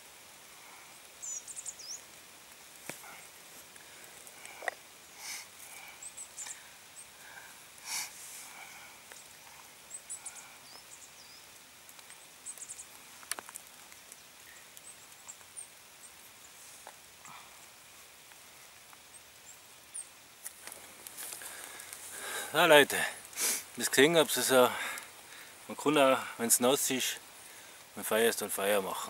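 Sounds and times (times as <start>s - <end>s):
wood shavings fire crackling: 0.0s - 29.0s
soft rustling: 20.4s - 22.5s.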